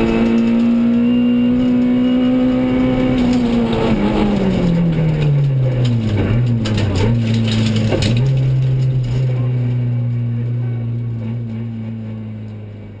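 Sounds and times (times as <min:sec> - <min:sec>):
car engine from inside cabin: 0:00.0 - 0:13.0.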